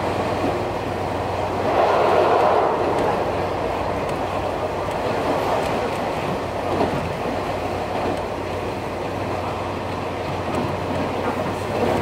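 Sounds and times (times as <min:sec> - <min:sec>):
train wheels and motors rumbling: 0:00.0 - 0:12.0
low hum: 0:00.8 - 0:05.9
clicks over rail joints: 0:04.0 - 0:12.0.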